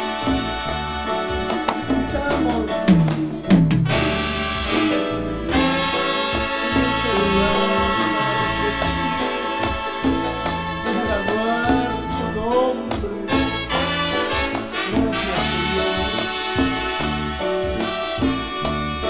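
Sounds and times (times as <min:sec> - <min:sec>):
bass: 0:00.0 - 0:19.0
held brass chords: 0:00.0 - 0:19.0
trumpet section playing: 0:00.0 - 0:19.0.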